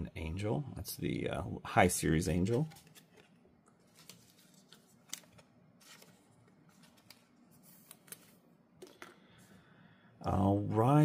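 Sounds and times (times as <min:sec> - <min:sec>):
trading cards clicking and rustling: 0:02.3 - 0:09.3.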